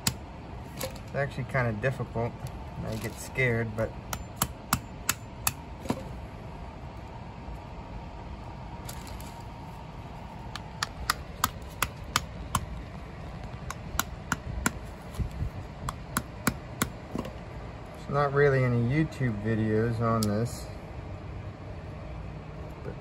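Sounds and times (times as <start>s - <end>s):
hammer tapping seed shell: 10.5s - 12.8s.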